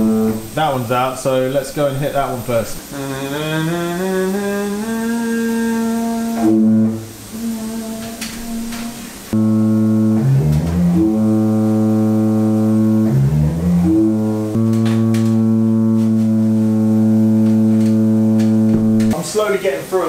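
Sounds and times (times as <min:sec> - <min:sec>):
church organ held notes: 0:00.0 - 0:01.2, 0:08.6 - 0:19.2
organ rising run of notes: 0:00.0 - 0:01.2, 0:09.3 - 0:19.2.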